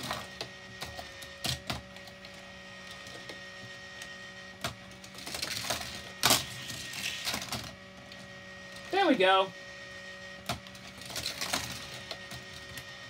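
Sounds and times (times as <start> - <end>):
toy cars and track clacking: 0.0 - 2.3, 4.6 - 7.7, 10.5 - 12.9
toy motor whirring: 0.0 - 13.0.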